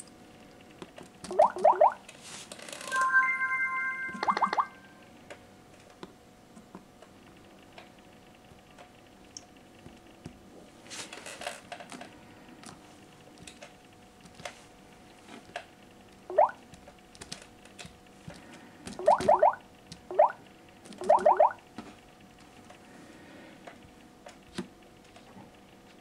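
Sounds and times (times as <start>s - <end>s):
short rising chirp: 2.8s - 5.0s
fingers tapping touchscreen: 19.0s - 20.4s.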